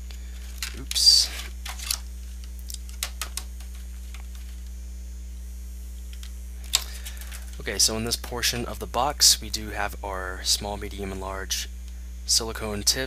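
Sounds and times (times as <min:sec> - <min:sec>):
low mains hum: 0:00.0 - 0:13.0
plastic packaging crackling: 0:00.3 - 0:04.7, 0:06.2 - 0:07.7.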